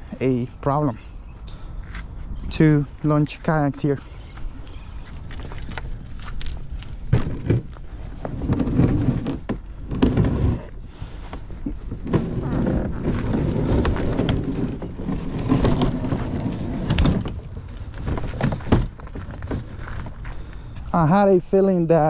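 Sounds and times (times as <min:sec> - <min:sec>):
cart wheels rolling over gravel: 0:02.8 - 0:22.0.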